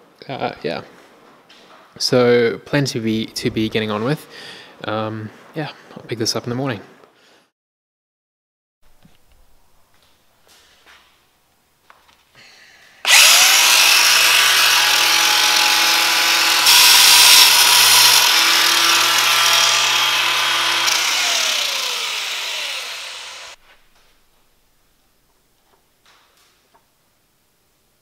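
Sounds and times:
power grinder grinding: 13.1 - 23.6.

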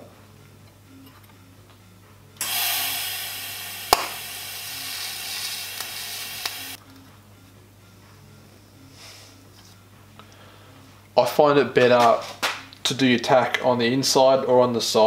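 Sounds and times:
welding torch hiss: 2.4 - 6.8
sharp crack: 3.9 - 4.3.

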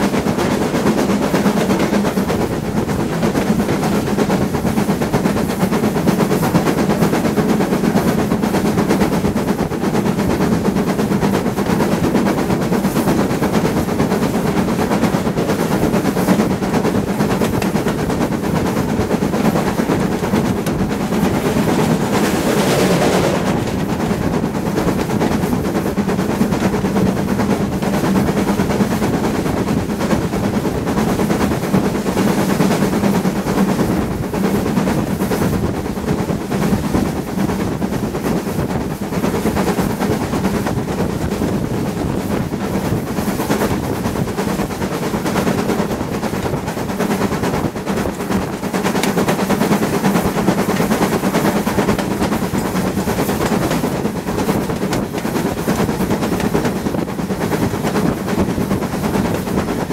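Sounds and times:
steam locomotive exhaust beats: 0.0 - 59.9
wheels clattering on rails: 0.0 - 59.9.

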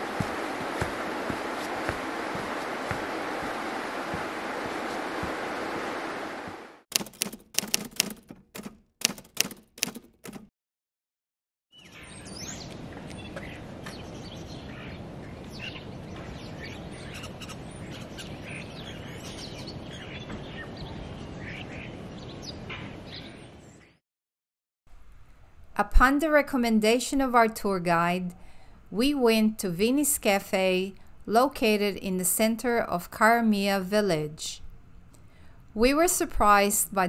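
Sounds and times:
outdoor background hiss: 0.0 - 6.8, 24.9 - 37.0
sharp knocks: 6.9 - 10.5
small birds chirping: 11.7 - 24.0.

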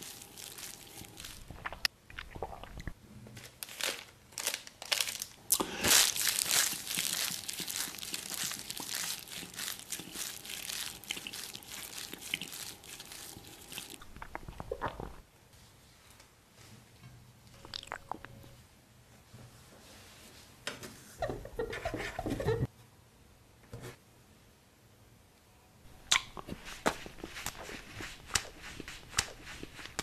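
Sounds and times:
plastic wrapper crinkling: 0.0 - 1.9, 3.4 - 15.2.

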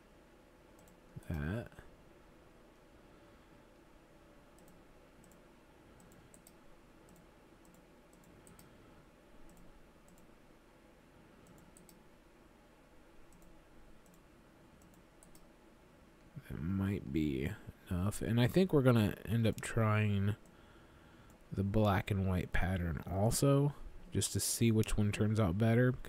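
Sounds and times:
low room hum: 0.0 - 26.0
faint computer mouse clicks: 4.6 - 5.4, 6.0 - 8.8, 9.4 - 10.3, 11.4 - 12.0, 13.3 - 14.2, 14.8 - 15.5.

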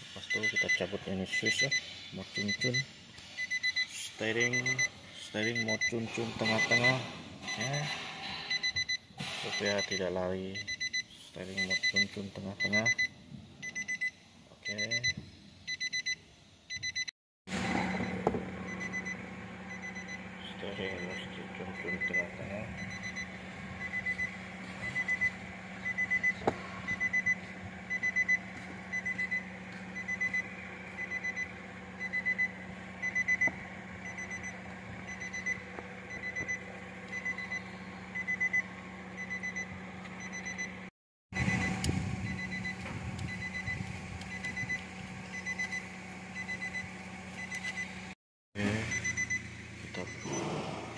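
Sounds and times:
dashboard warning chime beeping: 0.2 - 17.1, 17.8 - 40.8, 41.4 - 48.0, 48.9 - 50.5
steady low hum: 17.5 - 50.9.

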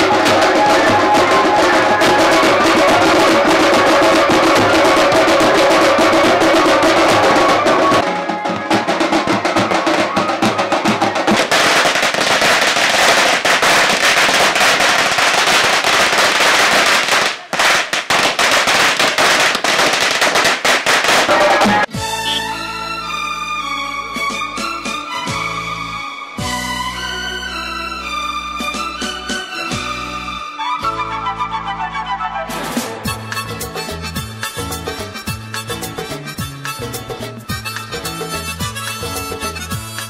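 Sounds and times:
music: 0.0 - 12.8, 21.2 - 40.0
firecracker popping and crackling: 9.8 - 21.9.

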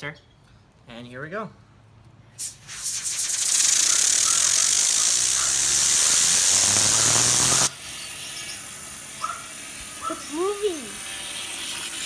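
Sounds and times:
compressed air spray hiss: 2.4 - 12.0.

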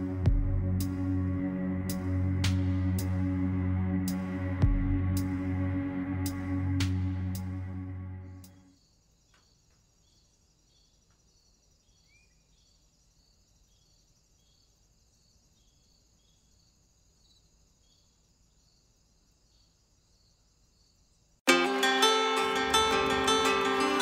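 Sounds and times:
faint crickets chirping: 8.4 - 21.4.

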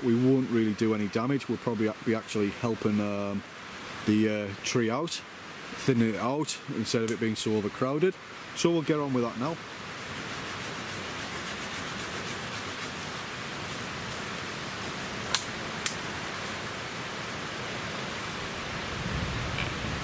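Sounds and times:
hand saw rasping through wood: 10.0 - 15.0.

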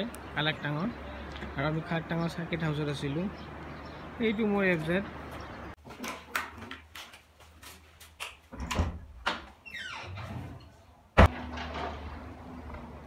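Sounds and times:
knocks and footsteps: 5.1 - 9.7
door slamming: 11.2 - 12.0.

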